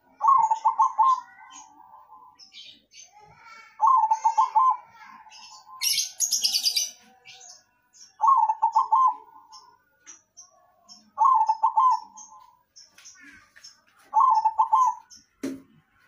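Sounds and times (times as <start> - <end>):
dove cooing: 0.0 - 2.3, 3.8 - 6.9, 8.2 - 9.5, 11.2 - 12.5, 14.1 - 15.1
high bird chirping: 0.0 - 15.4.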